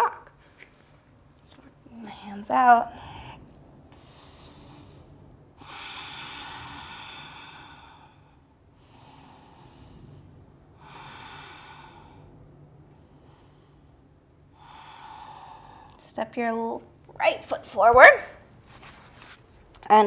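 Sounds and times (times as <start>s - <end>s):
person breathing slowly: 2.2s - 16.0s.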